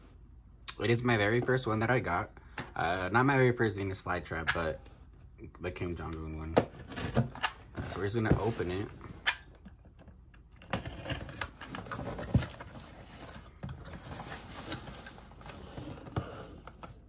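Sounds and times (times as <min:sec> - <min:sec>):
cardboard box being opened: 0:10.7 - 0:16.6.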